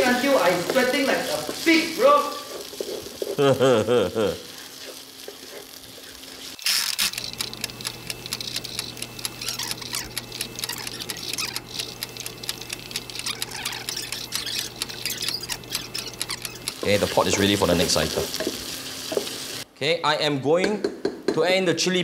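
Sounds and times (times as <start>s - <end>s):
spice paste sizzling in pot: 0.0s - 6.6s, 7.9s - 19.7s.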